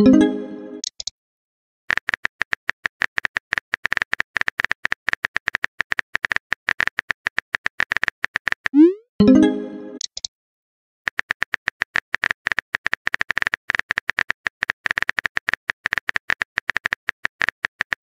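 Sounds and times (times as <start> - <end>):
message sent chime: 0.0 - 0.8, 8.8 - 10.0.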